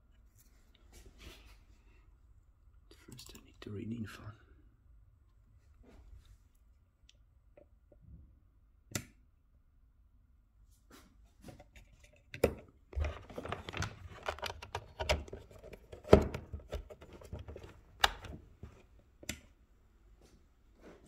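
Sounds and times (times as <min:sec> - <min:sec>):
plastic box clicking: 0:12.4 - 0:18.4.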